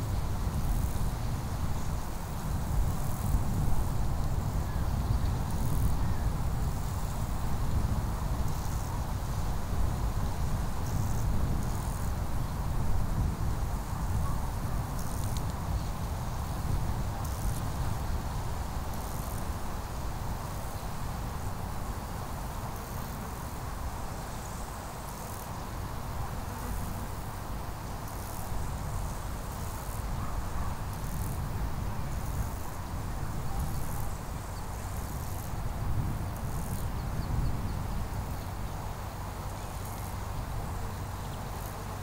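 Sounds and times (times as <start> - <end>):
insects chirping in trills: 10.3 - 42.0.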